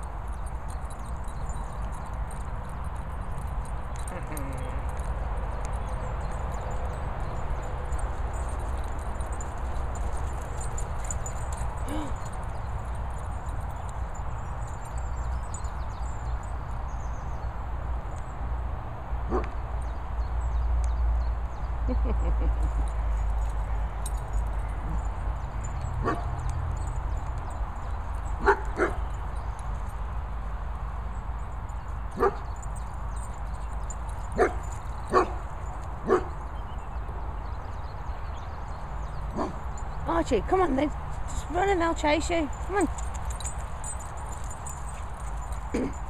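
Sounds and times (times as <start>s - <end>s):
dog barking: 19.3s - 19.5s, 26.0s - 26.4s, 28.4s - 29.0s, 32.2s - 32.4s, 34.4s - 35.4s, 36.0s - 36.3s, 39.3s - 39.6s.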